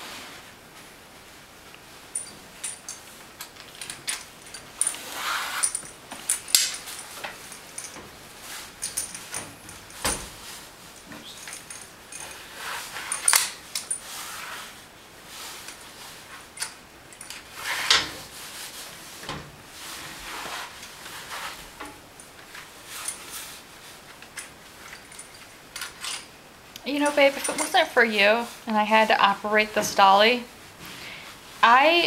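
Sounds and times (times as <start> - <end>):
webbing strap sliding: 4.8 - 5.8.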